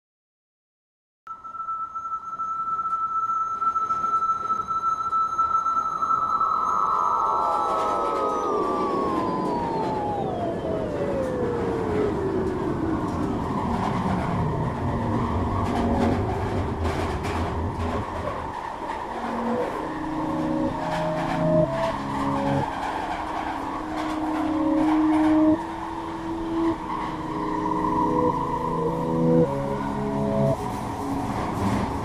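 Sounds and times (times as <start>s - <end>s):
synth tone sliding down: 1.6s - 32.0s
short held synth notes: 19.2s - 31.8s.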